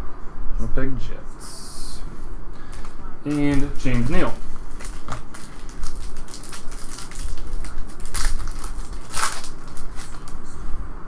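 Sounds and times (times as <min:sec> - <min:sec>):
foil wrapper crinkling: 0:02.6 - 0:10.4.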